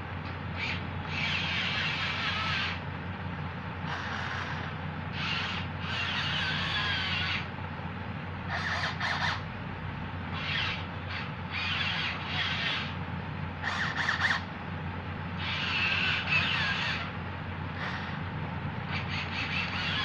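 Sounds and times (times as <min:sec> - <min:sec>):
steady low hum: 0:00.0 - 0:20.0
toy tractor motors whining: 0:00.6 - 0:02.8, 0:03.8 - 0:07.5, 0:08.5 - 0:09.5, 0:10.3 - 0:13.0, 0:13.6 - 0:14.5, 0:15.3 - 0:18.3, 0:18.9 - 0:20.0.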